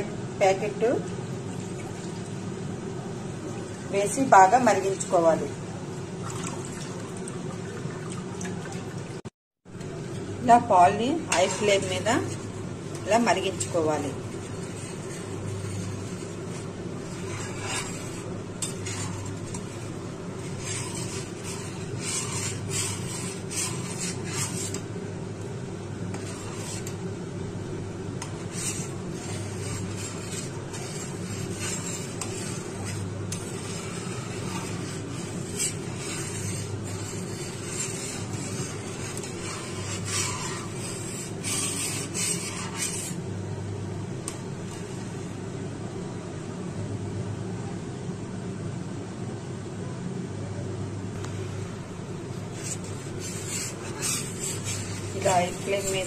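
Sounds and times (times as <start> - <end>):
steady low hum: 0.0 - 56.0
milk boiling and frothing: 1.2 - 45.5, 51.2 - 56.0
metal spatula scraping pan: 11.3 - 12.5, 13.2 - 24.8, 26.1 - 27.0, 28.2 - 43.2, 52.5 - 56.0.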